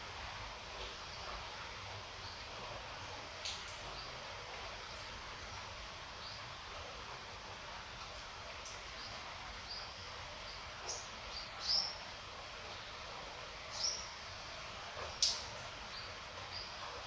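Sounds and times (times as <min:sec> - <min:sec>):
gentle rain hissing: 0:00.0 - 0:17.0
bird chirping: 0:09.0 - 0:12.0, 0:13.7 - 0:14.2.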